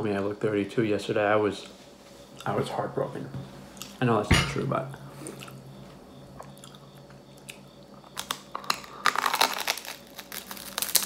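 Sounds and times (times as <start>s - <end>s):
chewing: 5.2s - 5.6s, 6.4s - 9.4s
crisp crunches of bread: 8.1s - 11.0s.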